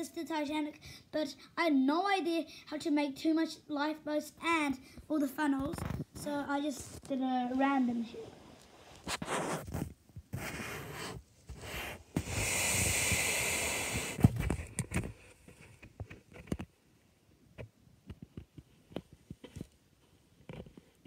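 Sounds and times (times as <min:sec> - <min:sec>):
steady hiss: 0:06.2 - 0:15.1.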